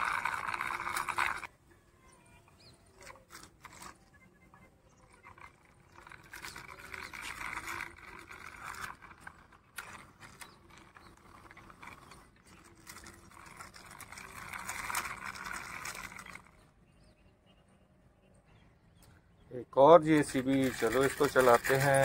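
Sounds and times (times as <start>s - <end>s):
toy wheels rattling on concrete: 0.0s - 16.8s, 19.8s - 22.0s.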